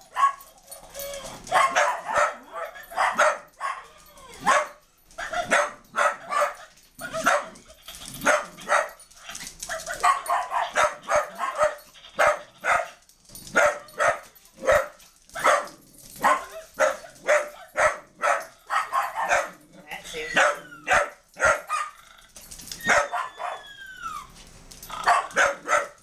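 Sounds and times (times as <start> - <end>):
dog barking: 0.1 - 0.4, 1.5 - 7.6, 8.2 - 9.0, 9.8 - 19.6, 20.3 - 22.0, 22.9 - 23.6, 25.0 - 26.0.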